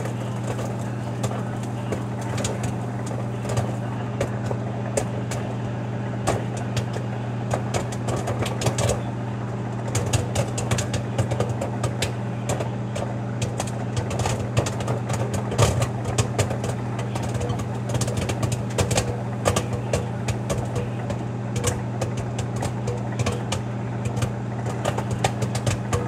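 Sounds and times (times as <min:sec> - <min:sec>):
microwave oven humming: 0:00.0 - 0:26.0
popcorn popping: 0:00.0 - 0:26.0.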